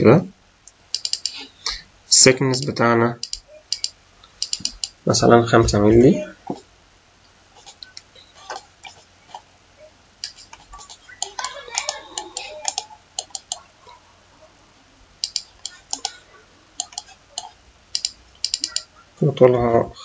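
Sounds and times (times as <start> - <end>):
mouse buttons clicking: 0.7 - 1.5, 2.6 - 5.0, 10.2 - 13.7, 15.2 - 16.2, 16.8 - 18.9
keyboard keys clicking: 0.9 - 1.4, 2.6 - 5.0, 10.2 - 13.6, 15.2 - 16.2, 16.8 - 18.9.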